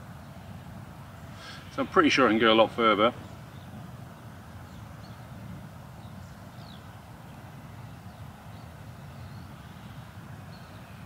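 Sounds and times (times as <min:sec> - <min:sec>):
wind buffeting microphone: 0:00.0 - 0:11.0
faint high bird chirps: 0:06.0 - 0:07.0.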